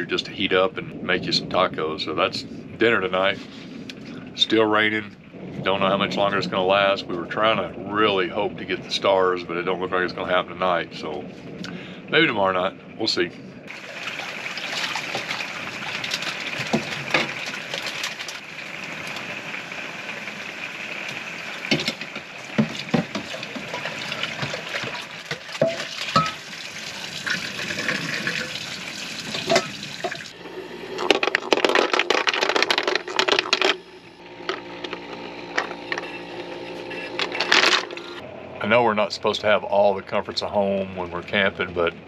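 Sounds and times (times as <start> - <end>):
faucet water running into sink: 13.7 - 30.4
pot and utensils clinking: 21.7 - 26.4, 29.3 - 30.2.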